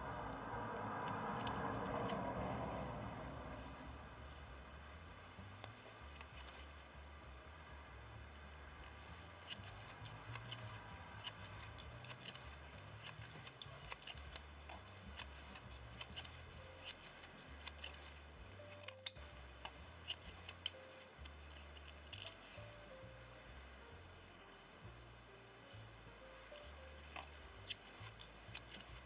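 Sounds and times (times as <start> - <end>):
steady low hum: 0.0 - 29.0
small clicks of shuttle and thread: 26.4 - 29.0.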